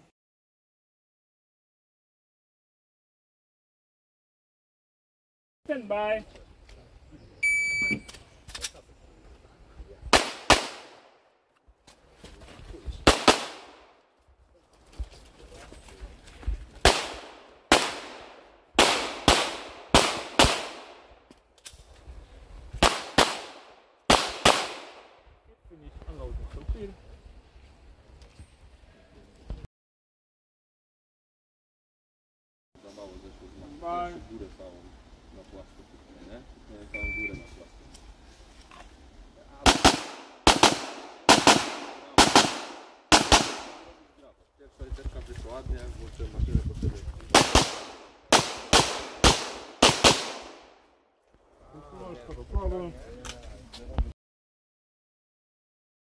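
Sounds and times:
pistol shots with echo: 10.1 - 11.1, 13.1 - 13.9, 16.8 - 21.1, 22.8 - 25.2, 39.6 - 44.0, 47.4 - 50.7.

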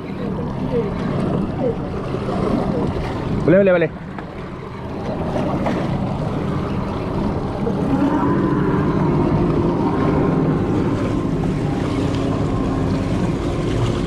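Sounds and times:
outboard motors humming: 0.0 - 14.0
water washing along boat hull: 0.0 - 14.0
wind on microphone: 4.8 - 14.0.

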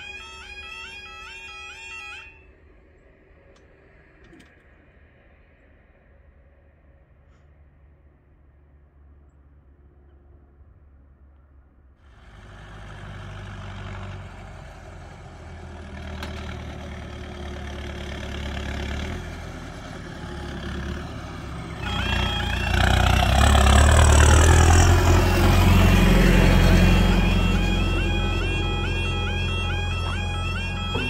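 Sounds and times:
tractor diesel engine passing: 12.0 - 31.0
level crossing alarm two-pitch tone: 21.8 - 23.7, 24.8 - 31.0.

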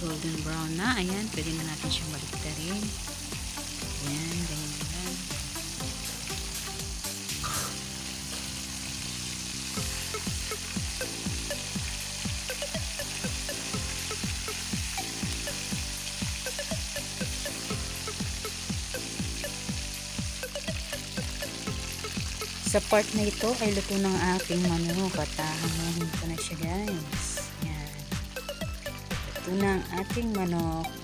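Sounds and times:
chicken sizzling in hot oil: 0.0 - 31.0
low rhythmic thumping beat: 9.7 - 31.0.

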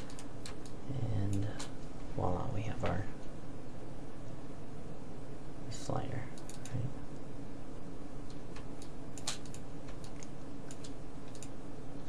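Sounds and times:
computer clicks: 0.0 - 1.8, 6.3 - 7.3, 8.2 - 11.6
low hum and hiss: 0.0 - 12.0.

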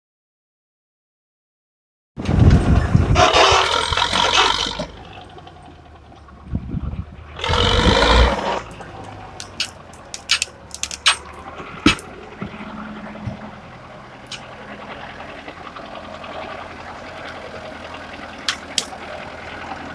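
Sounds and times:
truck engine revving: 2.2 - 19.9
sharp clicks and snaps: 9.0 - 11.3.

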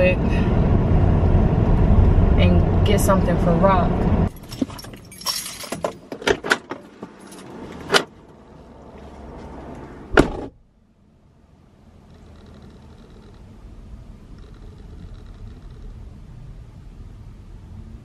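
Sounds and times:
keys clicking and rattling: 4.3 - 6.2
car door shutting: 10.1 - 10.6.

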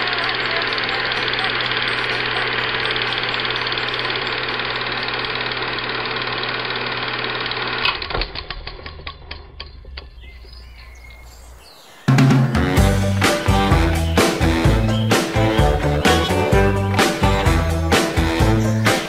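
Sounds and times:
film projector whirring: 0.0 - 9.2
projector ticking running down: 0.0 - 10.7.

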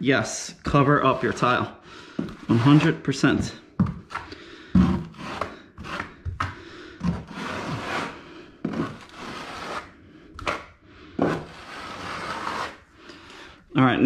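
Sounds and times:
steel trowel scraping mortar: 1.0 - 1.6, 2.4 - 3.5, 4.8 - 6.2, 7.1 - 9.9, 11.2 - 12.8.

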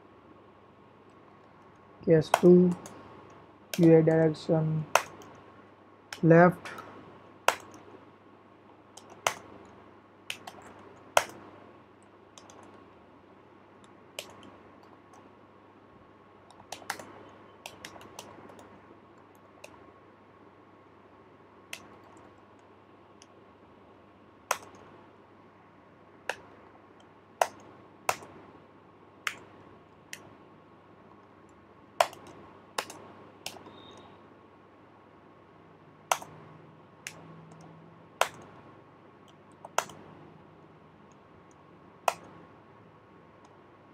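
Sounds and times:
faint steady hum: 0.0 - 43.9
keyboard key clicks: 16.5 - 18.7, 24.5 - 24.9, 32.0 - 34.1, 36.1 - 36.4, 39.5 - 40.0.

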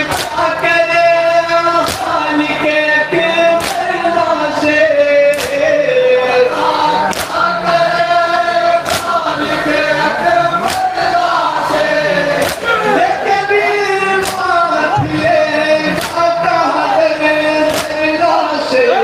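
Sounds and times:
men chanting through pa system: 0.0 - 19.0
massed chest-beating slaps: 0.1 - 0.4, 1.8 - 2.2, 3.6 - 3.9, 5.3 - 5.6, 7.1 - 7.4, 8.8 - 9.2, 10.6 - 11.0, 12.4 - 12.7, 14.2 - 15.3, 16.0 - 16.3, 17.7 - 18.0.

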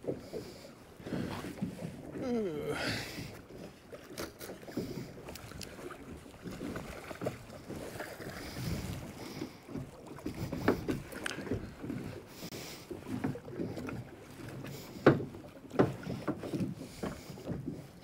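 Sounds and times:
water slapping boat hull: 0.0 - 18.0
wind on microphone: 8.2 - 9.2.

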